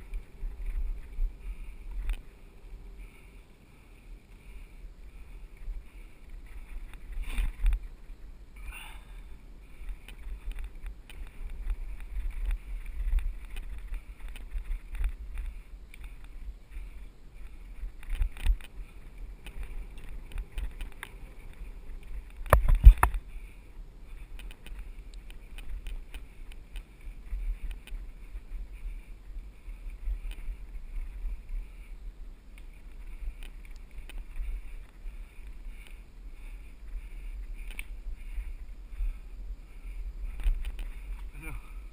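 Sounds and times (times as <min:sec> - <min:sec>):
wind and trail rumble: 0:00.0 - 0:41.9
bike rattling over bumps: 0:04.2 - 0:31.8.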